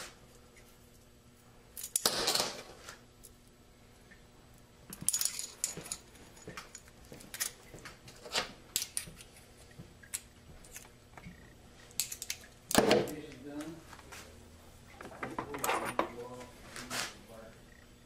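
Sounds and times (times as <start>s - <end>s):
metal parts clinking: 4.9s - 7.6s, 12.0s - 12.4s.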